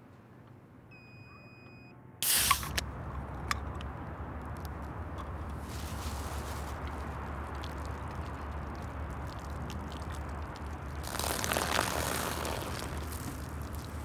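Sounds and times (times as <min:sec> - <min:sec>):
low outdoor rumble: 0:02.0 - 0:14.0
beer splashing onto grass: 0:05.5 - 0:14.0.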